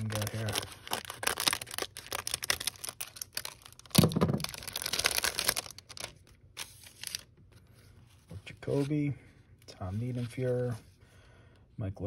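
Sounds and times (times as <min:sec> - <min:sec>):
plastic ripping: 0:00.0 - 0:07.3
plastic wrapper crinkling: 0:00.0 - 0:07.3.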